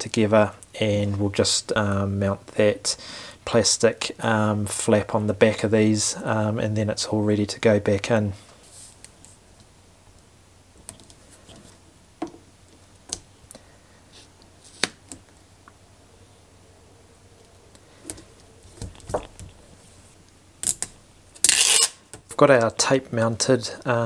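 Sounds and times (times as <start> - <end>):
tape handling noises: 17.4 - 22.4.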